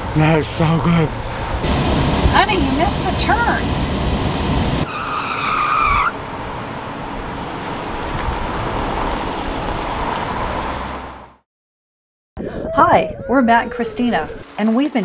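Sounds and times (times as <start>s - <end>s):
vehicle road and engine noise: 0.0s - 11.4s
tyres squealing: 4.8s - 6.2s.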